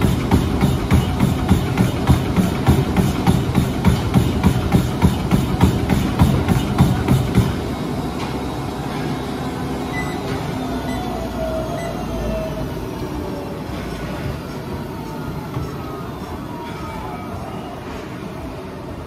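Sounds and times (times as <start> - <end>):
running footfalls on treadmill belt: 0.0 - 11.0
walking steps on treadmill: 0.0 - 16.4
treadmill motor whine: 0.0 - 19.0.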